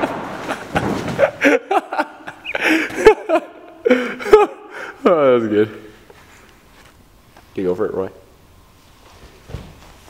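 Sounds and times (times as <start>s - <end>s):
foam blocks thudding: 0.0s - 1.4s
people laughing: 0.0s - 5.6s.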